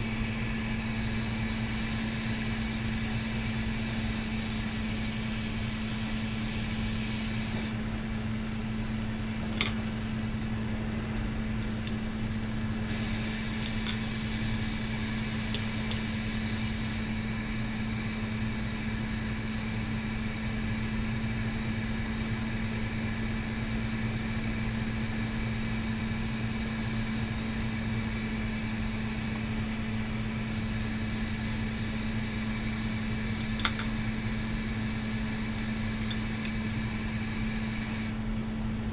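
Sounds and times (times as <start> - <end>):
bench torch burning: 0.0 - 38.4.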